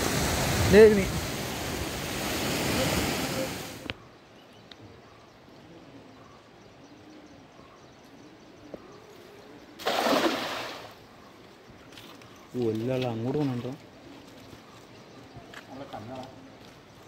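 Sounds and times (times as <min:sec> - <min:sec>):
rush of water: 0:00.0 - 0:04.0, 0:09.8 - 0:11.0
net splashing into water: 0:09.8 - 0:11.0.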